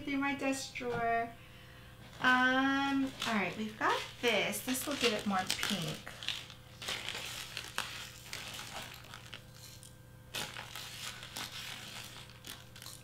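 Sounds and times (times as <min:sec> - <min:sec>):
plastic bag crinkling: 0:02.0 - 0:13.0
plastic scoop clicks and scrapes: 0:02.9 - 0:13.0.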